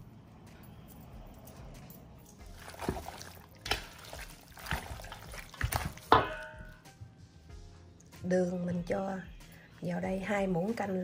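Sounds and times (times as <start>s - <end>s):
metal bowl ringing: 6.1s - 6.8s.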